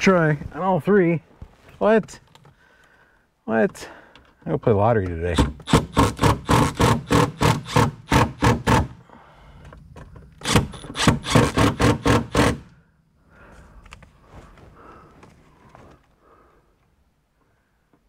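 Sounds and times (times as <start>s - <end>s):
drill motor humming: 10.4s - 12.7s.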